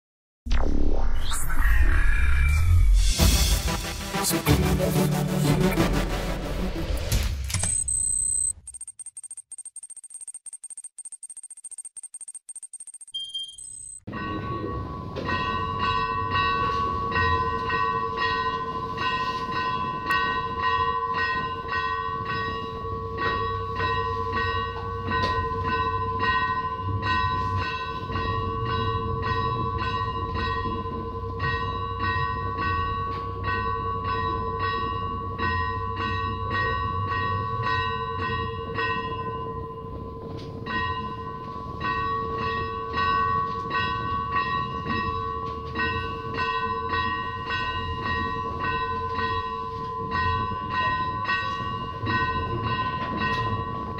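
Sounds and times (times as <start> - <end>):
church bells ringing rapidly: 14.1 - 53.9.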